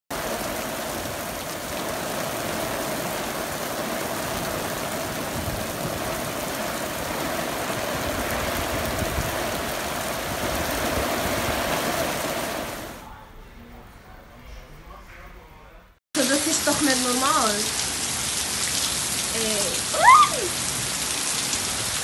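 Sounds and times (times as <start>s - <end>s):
heavy rain on paving and puddles: 0.1s - 13.0s, 16.2s - 22.0s.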